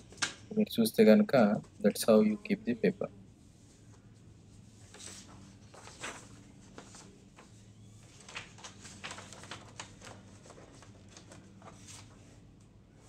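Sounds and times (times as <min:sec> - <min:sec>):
faint low hum: 0:00.0 - 0:13.0
paper rustling and scraping: 0:04.7 - 0:12.4.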